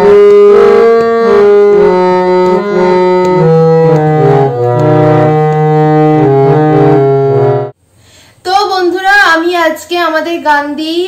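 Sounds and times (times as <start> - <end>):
harmonium playing chords: 0.0 - 7.8.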